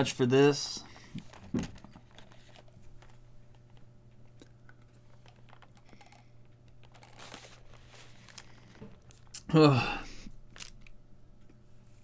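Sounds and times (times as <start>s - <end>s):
steady low hum: 0.0s - 12.0s
chocolate box clicks and rustles: 0.8s - 9.3s.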